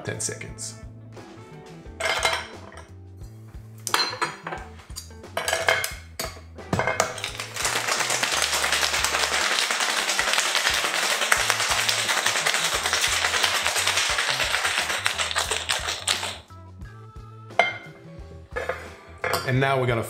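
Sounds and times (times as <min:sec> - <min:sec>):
shaker tin knocking onto glass: 0:06.8 - 0:16.4
ice cubes clattering into glass: 0:06.9 - 0:16.4
ice rattling in cocktail shaker: 0:07.0 - 0:16.4.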